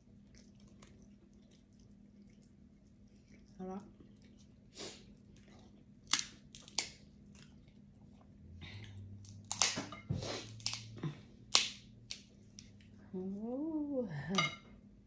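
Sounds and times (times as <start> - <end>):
crab shells cracking: 6.0 - 7.4, 9.2 - 9.9, 10.5 - 10.9, 11.5 - 12.7.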